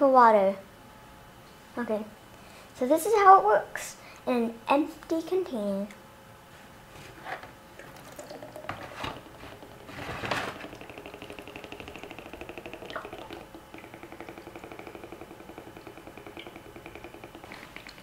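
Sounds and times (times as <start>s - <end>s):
water glugging in jar: 7.8s - 18.0s
water trickling: 7.8s - 18.0s.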